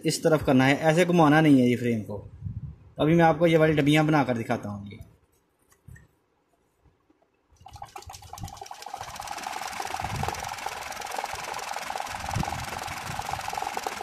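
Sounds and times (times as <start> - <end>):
sewing machine stitching: 7.6 - 14.0.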